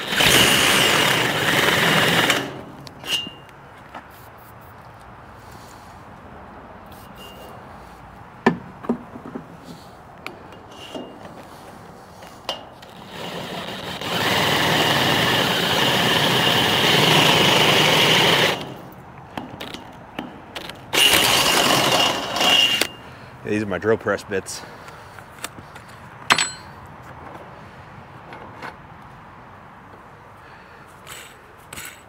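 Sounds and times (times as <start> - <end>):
cordless drill drilling into steel: 0.0 - 3.4, 12.9 - 18.9, 20.9 - 23.0
handling clicks and knocks: 8.4 - 11.5.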